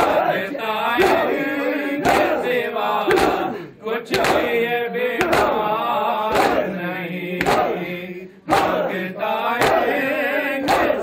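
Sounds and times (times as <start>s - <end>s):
men chanting a lament: 0.0s - 11.0s
chest-beating slaps: 1.0s - 4.6s, 5.2s - 5.7s, 6.3s - 6.7s, 7.4s - 7.9s, 8.5s - 8.9s, 9.6s - 10.0s, 10.6s - 11.0s.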